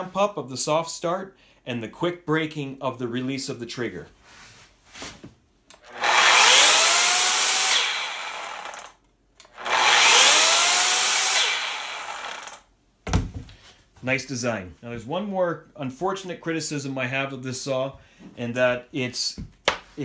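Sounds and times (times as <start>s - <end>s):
electric chainsaw motor whine: 5.8s - 12.6s.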